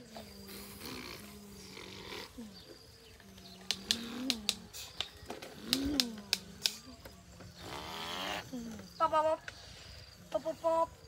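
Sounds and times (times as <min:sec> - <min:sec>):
sharp clicks: 0:03.5 - 0:06.9.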